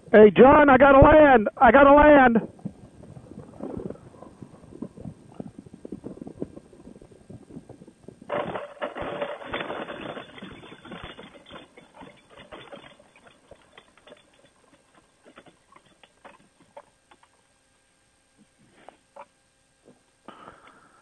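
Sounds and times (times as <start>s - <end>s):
wheels rattling through grass: 2.5s - 17.5s.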